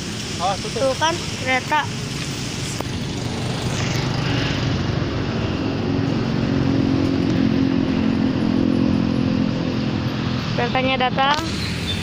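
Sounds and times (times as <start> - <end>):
motor scooter engine running: 2.8 - 12.0.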